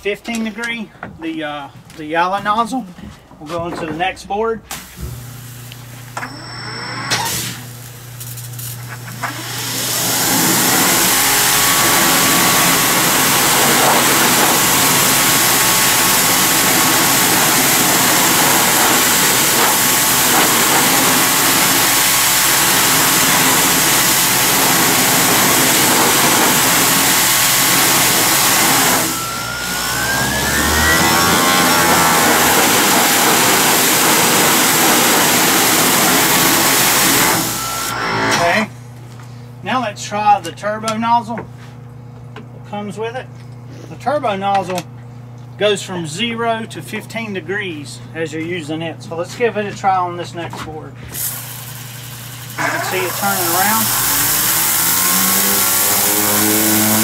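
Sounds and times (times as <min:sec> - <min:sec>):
pressure washer motor hum: 0:04.7 - 0:38.7, 0:51.2 - 0:57.0
water jet hissing on wood: 0:06.8 - 0:07.9, 0:09.3 - 0:38.0, 0:51.2 - 0:57.0.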